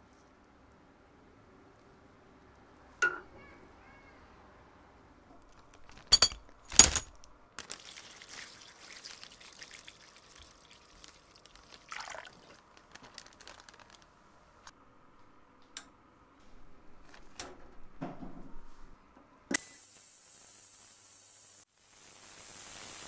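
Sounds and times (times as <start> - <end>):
liquid pouring into plastic bag: 7.6 - 14.1.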